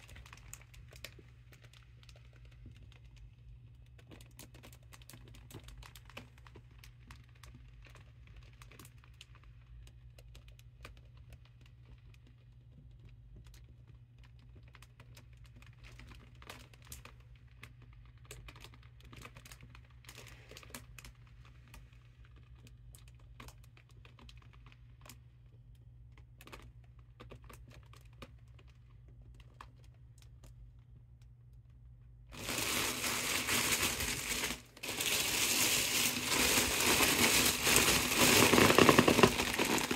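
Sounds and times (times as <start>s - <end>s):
foil balloon crinkling: 32.3s - 39.9s.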